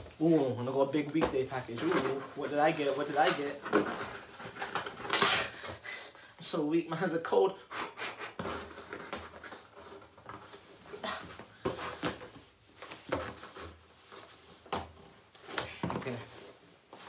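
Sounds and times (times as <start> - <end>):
fingers scratching packing tape: 7.7 - 9.2.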